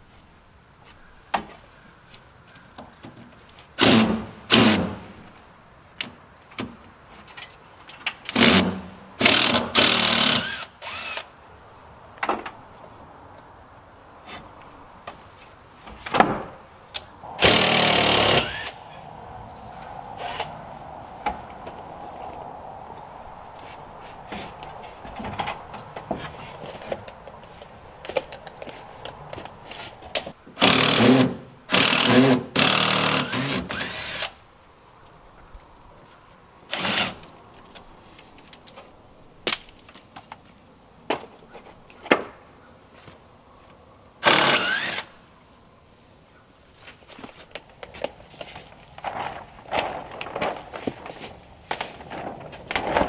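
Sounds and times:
power drill bursts: 8.4s - 11.3s, 17.4s - 18.7s, 30.6s - 34.3s, 44.2s - 45.1s.

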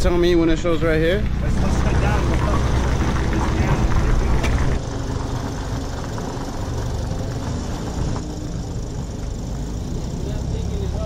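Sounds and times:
vehicle engines rumbling: 0.0s - 11.0s.

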